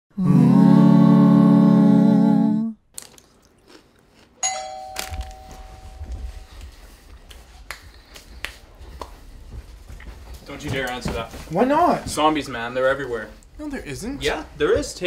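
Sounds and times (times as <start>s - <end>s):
doorbell chime: 4.4s - 6.7s.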